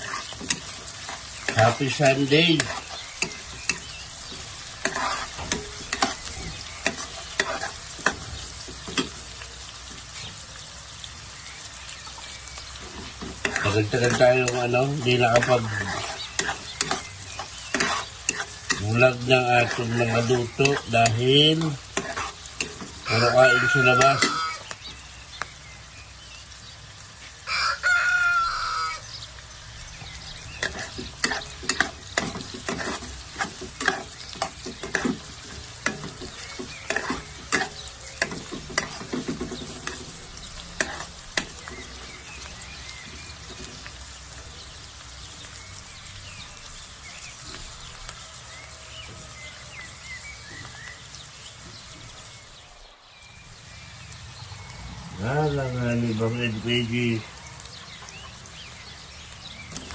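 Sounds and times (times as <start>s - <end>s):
spatula scraping a pan: 0.0s - 10.2s, 12.7s - 24.8s, 30.4s - 44.3s
food sizzling in a pan: 0.0s - 59.9s
rooster crowing: 23.0s - 24.8s, 27.2s - 29.2s, 48.1s - 50.0s.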